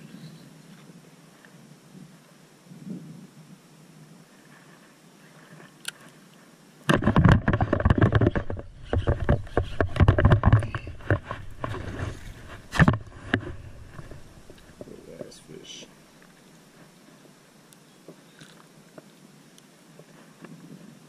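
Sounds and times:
rod and boat knocks: 6.9s - 15.4s.

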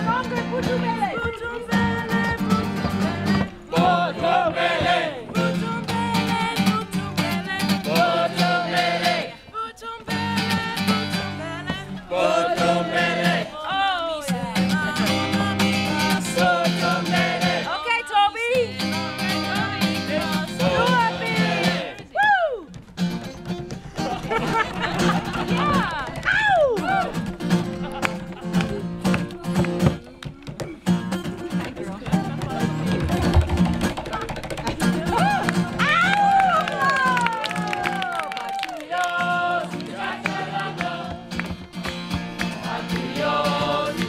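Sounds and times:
acoustic guitar and ukulele strummed: 0.0s - 22.0s, 22.7s - 38.0s, 39.0s - 44.0s
group of voices singing: 1.3s - 22.1s, 38.7s - 44.0s.

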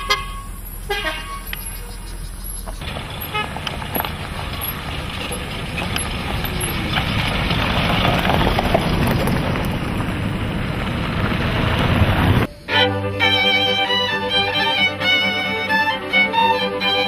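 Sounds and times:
tyres on gravel: 0.0s - 13.3s
car engines driving past: 0.0s - 17.0s.

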